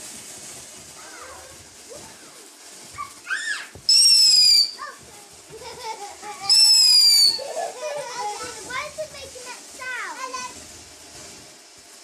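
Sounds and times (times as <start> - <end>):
firework sparks hissing: 0.0 - 12.0
high firework whistle: 1.0 - 5.0, 6.3 - 7.7.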